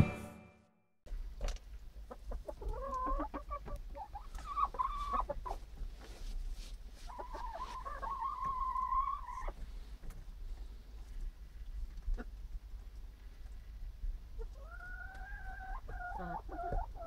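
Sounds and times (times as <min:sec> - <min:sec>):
hens clucking and calling: 0:02.1 - 0:05.7, 0:07.0 - 0:09.7, 0:14.3 - 0:17.0.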